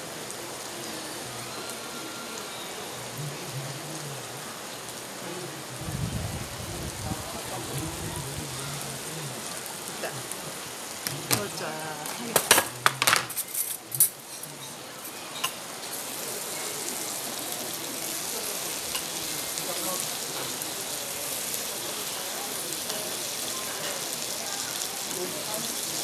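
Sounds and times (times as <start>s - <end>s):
food sizzling in stone bowl: 0.0s - 26.0s
tableware clinking: 11.0s - 16.0s.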